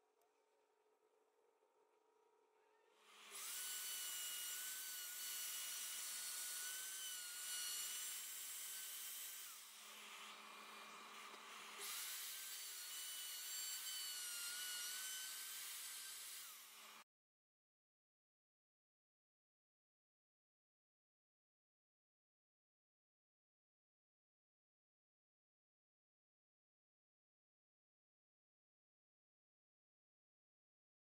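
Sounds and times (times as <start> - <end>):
router whining cutting wood: 3.0 - 17.0.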